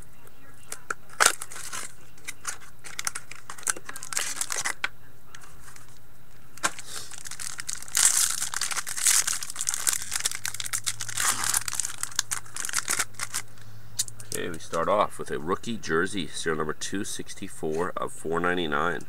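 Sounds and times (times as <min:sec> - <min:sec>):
foil wrapper tearing and crinkling: 0:01.1 - 0:04.8, 0:06.6 - 0:13.5.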